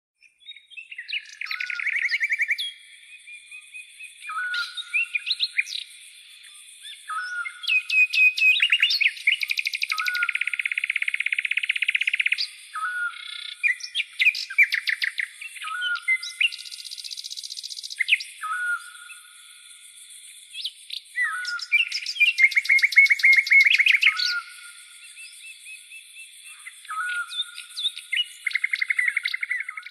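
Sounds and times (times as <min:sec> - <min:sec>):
birds chirping and trilling: 0:00.2 - 0:29.9.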